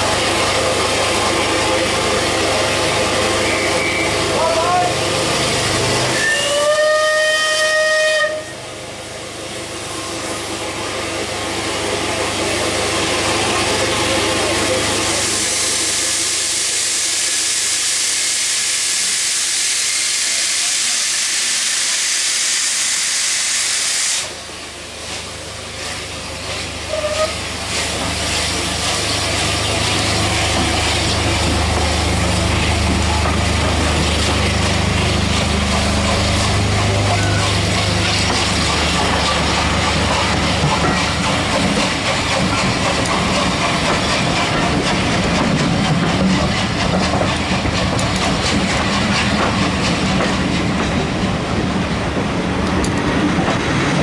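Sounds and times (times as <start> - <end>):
low rumble of train moving: 0.0 - 54.0
steam locomotive whistle: 3.4 - 4.9, 6.1 - 8.6, 26.9 - 27.4.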